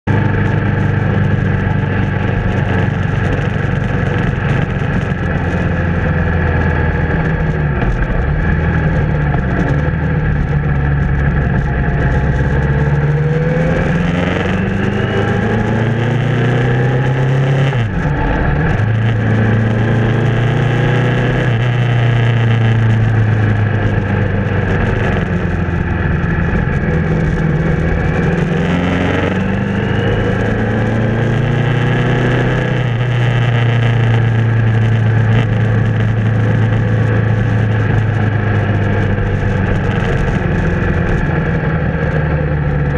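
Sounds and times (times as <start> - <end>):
motorcycle engine running: 0.0 - 42.9
wind rush: 0.1 - 31.2.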